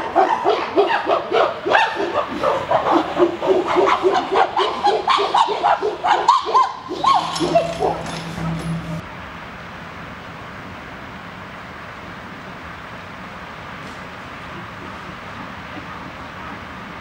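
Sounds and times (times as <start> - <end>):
chimpanzees hooting: 0.0 - 9.0.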